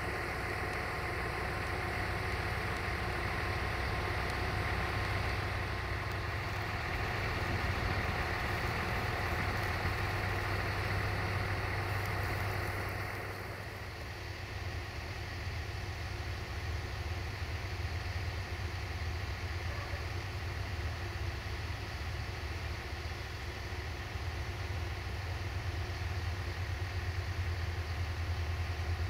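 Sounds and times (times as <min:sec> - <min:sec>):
train diesel engine humming: 0:00.0 - 0:29.0.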